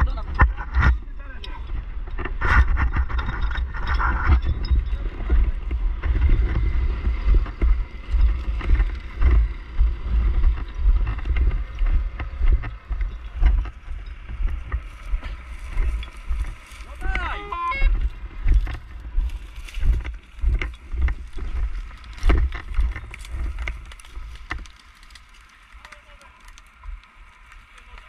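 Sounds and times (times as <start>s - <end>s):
gear knocking: 0.0s - 28.0s
wind and handling rumble: 0.0s - 28.0s
footsteps in dry grass: 1.8s - 28.0s.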